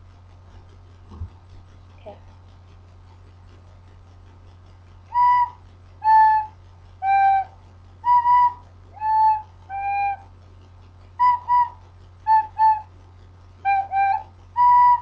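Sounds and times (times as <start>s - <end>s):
recorder playing simple tune: 5.1s - 10.2s, 11.2s - 12.9s, 13.7s - 15.0s.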